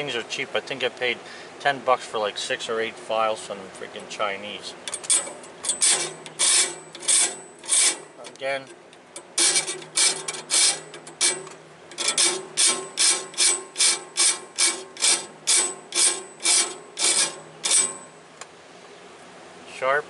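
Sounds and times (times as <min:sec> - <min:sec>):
hand file rasping on saw blade: 0:05.1 - 0:08.1, 0:09.4 - 0:18.1.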